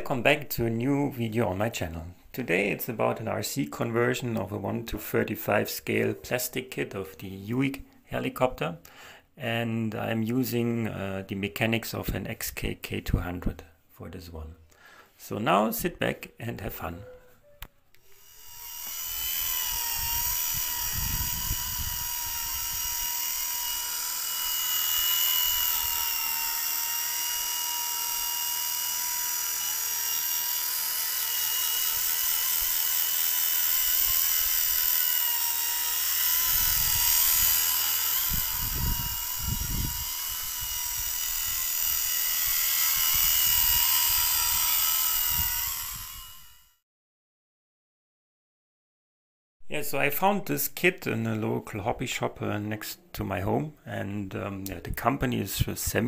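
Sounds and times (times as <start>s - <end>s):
rc helicopter whine: 18.0s - 46.8s.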